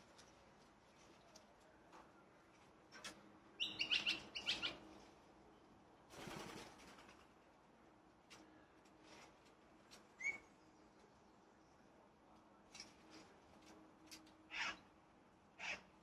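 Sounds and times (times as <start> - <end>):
birds chirping: 3.6 - 4.8
wings fluttering: 6.1 - 7.4.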